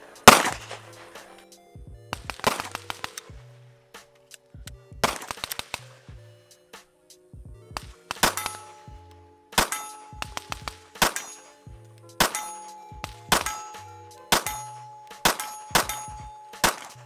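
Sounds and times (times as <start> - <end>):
pistol shots: 0.0 - 1.3, 2.1 - 3.2, 5.0 - 5.9, 8.1 - 8.9, 9.5 - 11.6, 12.2 - 17.0
steel target clanging and ringing: 0.0 - 1.3, 8.1 - 17.0.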